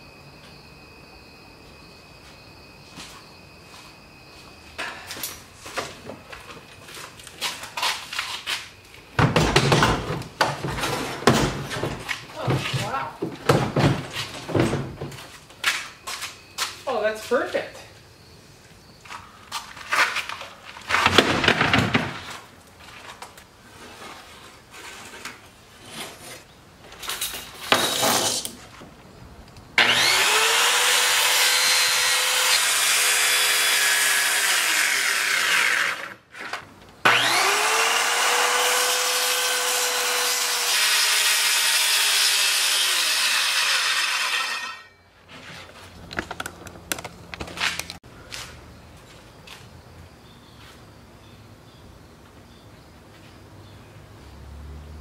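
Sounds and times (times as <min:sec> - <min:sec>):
plywood knocks and scrapes: 0:09.2 - 0:15.4, 0:19.5 - 0:26.5
circular saw cutting plywood: 0:29.8 - 0:45.0.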